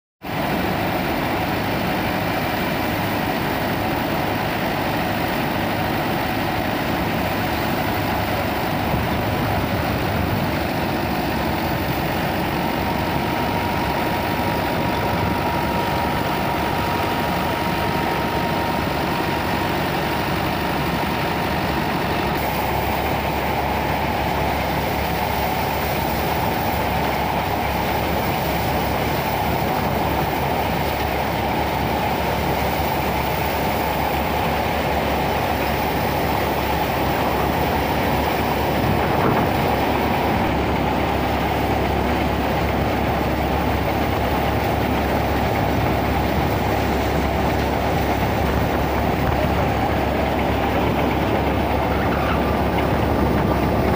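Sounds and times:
tractor engine under load: 0:00.2 - 0:53.9
thresher mechanical din: 0:35.8 - 0:53.9.

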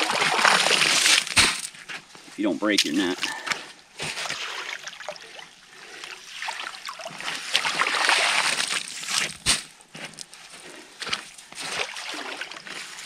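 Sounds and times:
net scooping slush and ice: 0:00.0 - 0:01.4, 0:06.2 - 0:09.6, 0:11.6 - 0:13.0
water sloshing and pouring: 0:00.0 - 0:01.4, 0:04.0 - 0:09.4, 0:11.1 - 0:13.0.

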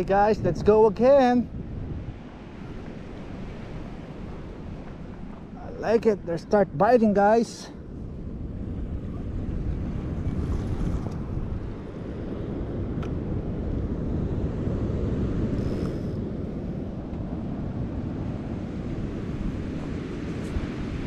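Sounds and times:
ocean surf: 0:00.0 - 0:21.0
wind buffeting microphone: 0:00.0 - 0:21.0.

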